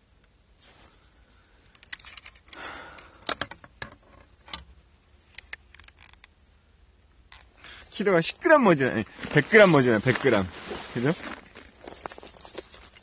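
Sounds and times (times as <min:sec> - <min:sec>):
metal clip and chain rattling: 0:01.8 - 0:02.7, 0:11.8 - 0:13.0
gloves and jacket rustling: 0:07.7 - 0:13.0.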